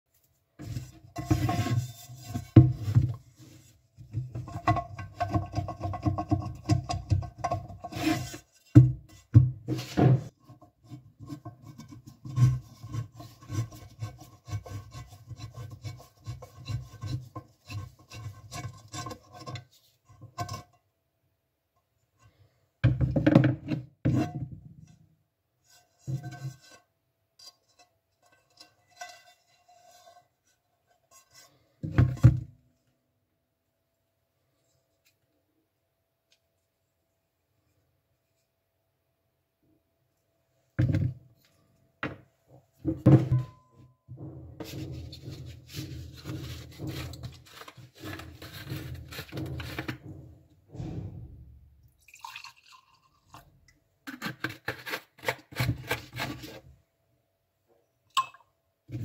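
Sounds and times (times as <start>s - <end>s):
gritty scrubbing on frying pan: 0.6s - 2.6s, 44.6s - 50.1s.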